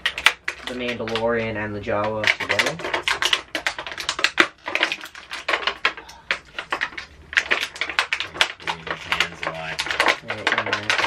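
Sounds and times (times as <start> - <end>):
plastic packaging crackling: 0.0 - 11.0.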